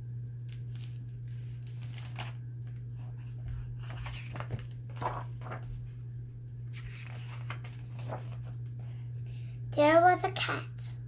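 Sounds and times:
steady low hum: 0.0s - 11.0s
book pages turning: 0.4s - 9.0s.

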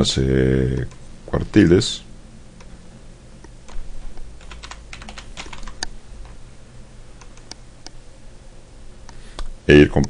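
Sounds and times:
typing on computer keyboard: 4.4s - 5.9s.

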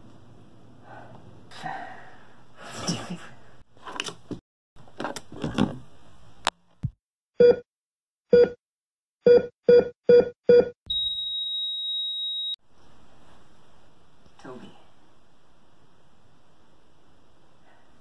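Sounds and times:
heart monitor beeps: 7.4s - 7.6s, 8.3s - 8.6s, 9.3s - 12.6s.

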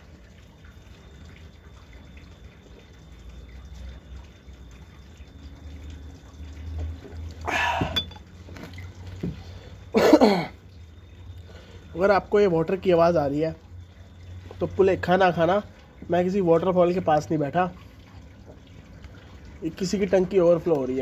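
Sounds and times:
water dripping and trickling: 0.0s - 21.0s.

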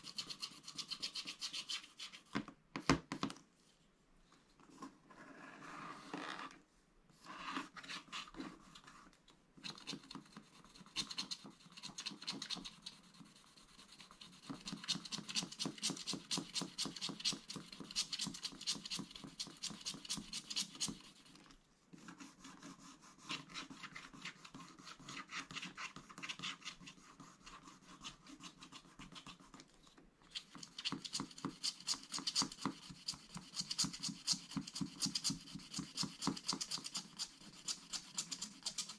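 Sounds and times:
stylus scratching card: 0.0s - 2.3s, 9.6s - 21.3s, 30.3s - 38.9s.

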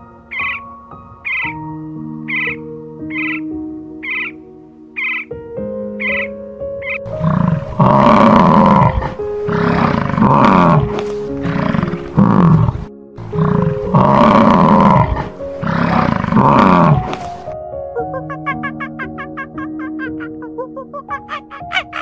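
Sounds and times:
bison bellowing: 7.0s - 17.5s.

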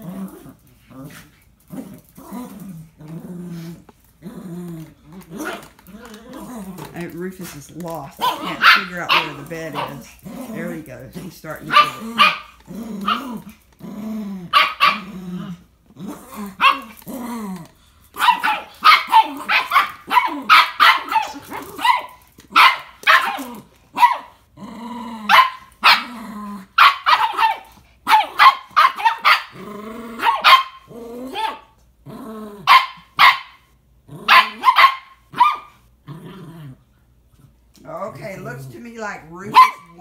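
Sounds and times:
dogs growling: 0.0s - 33.2s, 33.9s - 40.0s
small dogs barking: 8.1s - 10.8s, 11.5s - 13.5s, 14.4s - 15.2s, 16.5s - 17.0s, 18.2s - 24.4s, 25.2s - 31.8s, 32.6s - 35.8s, 39.4s - 40.0s.

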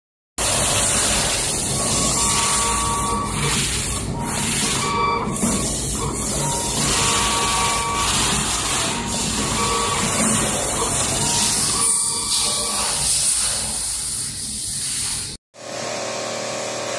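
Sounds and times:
machine running steadily: 0.4s - 13.2s, 15.6s - 16.9s
short whining tones: 1.1s - 13.6s.

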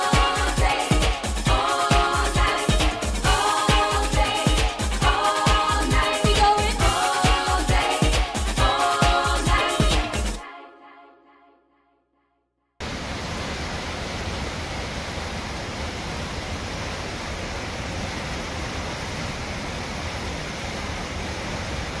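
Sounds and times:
whitewater rushing through canyon: 12.8s - 22.0s.

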